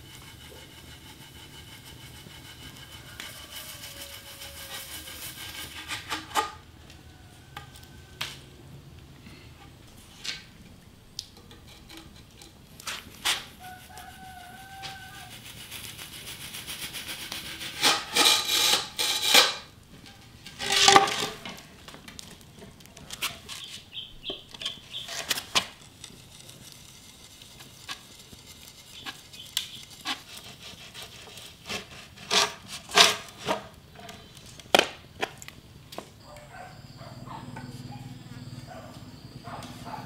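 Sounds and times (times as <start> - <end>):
rasping strokes on wood: 0.0 - 6.6, 11.7 - 19.7, 24.9 - 33.2
wood scraped by hand: 0.0 - 6.6, 11.4 - 34.4.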